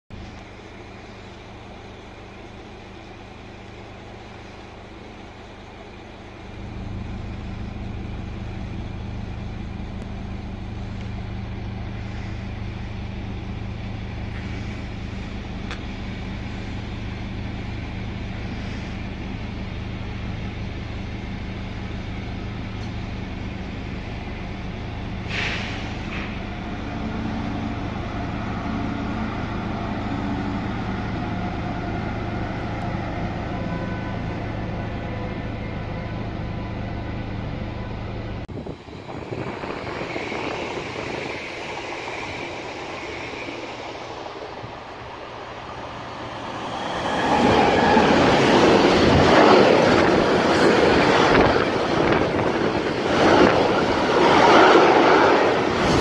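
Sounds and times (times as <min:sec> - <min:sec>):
air hiss: 0:25.3 - 0:26.4
electric train running: 0:26.3 - 0:56.0.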